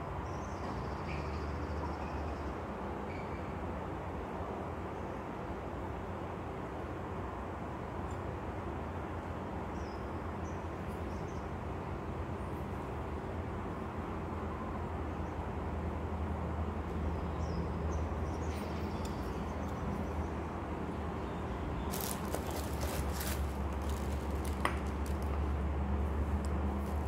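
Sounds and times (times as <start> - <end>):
packaging rustling and clicks: 21.9 - 25.4.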